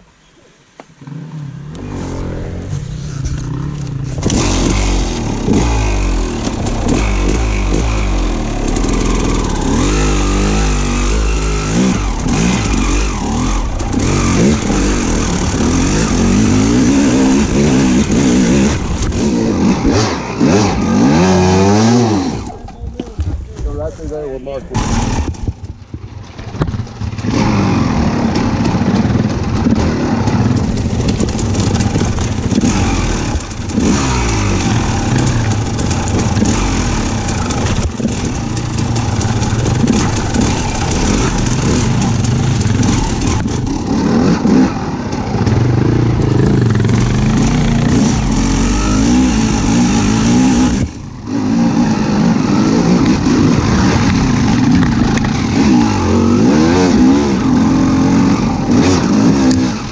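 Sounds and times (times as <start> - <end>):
engine revving: 1.0 - 22.6, 24.7 - 25.5, 26.5 - 59.9.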